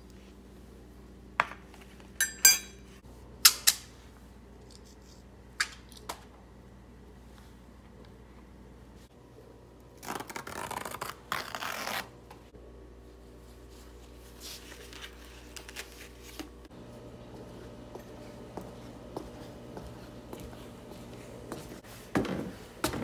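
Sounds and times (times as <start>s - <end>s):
paper towel ripping: 10.0s - 12.2s
paper rustling: 14.3s - 16.6s.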